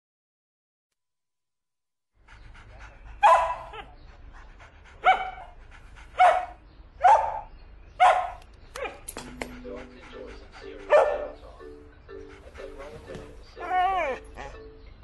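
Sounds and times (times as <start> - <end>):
dog barking: 3.2 - 3.9, 5.0 - 5.5, 6.2 - 9.5, 10.9 - 11.4.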